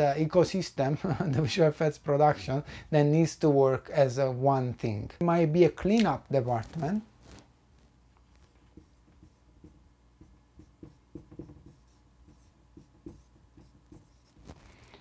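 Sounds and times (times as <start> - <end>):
marker writing on whiteboard: 8.5 - 14.6.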